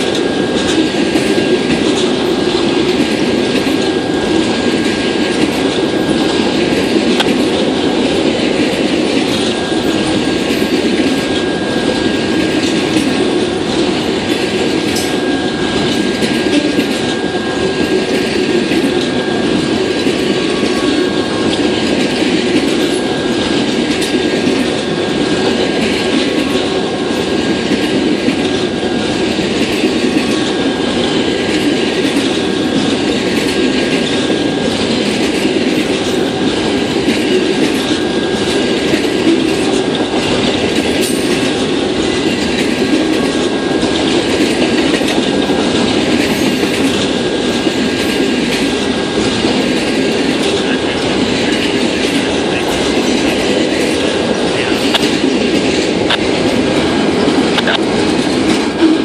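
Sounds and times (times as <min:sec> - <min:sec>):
clicking over rail joints: 0:00.0 - 0:59.0
steel wheels rumbling on rail: 0:00.0 - 0:59.0.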